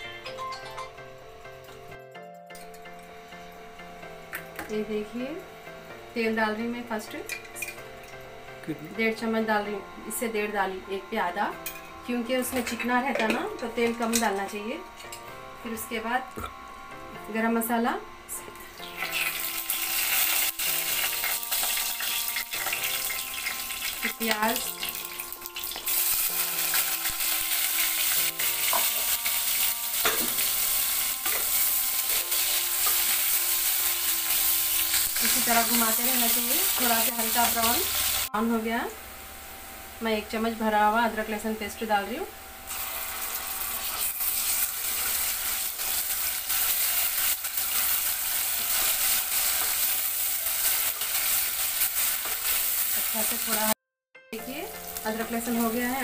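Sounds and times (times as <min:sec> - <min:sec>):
onions sizzling in hot oil: 0:18.7 - 0:38.4, 0:42.7 - 0:53.8, 0:54.4 - 0:56.0.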